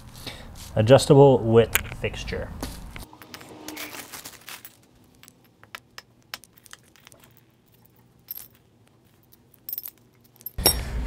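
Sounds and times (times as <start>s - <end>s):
metal parts jingling: 4.1s - 10.8s
metal bolts clicking and clinking: 5.1s - 10.8s.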